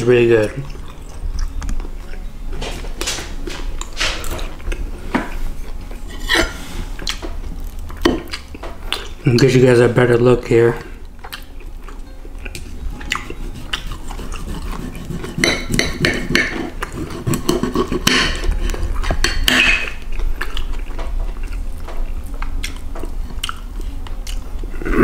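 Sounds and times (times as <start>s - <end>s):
knife and fork scraping plate: 13.2s - 20.0s.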